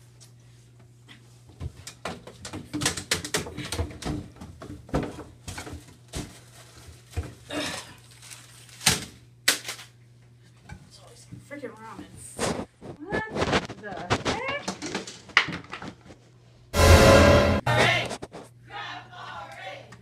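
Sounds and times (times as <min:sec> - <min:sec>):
steady low hum: 0:16.8 - 0:18.5.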